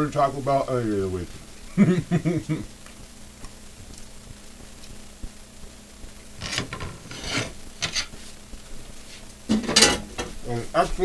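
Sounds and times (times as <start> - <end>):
chips frying in oil: 0.0 - 11.0
hand brushing crumbs on countertop: 6.4 - 8.4.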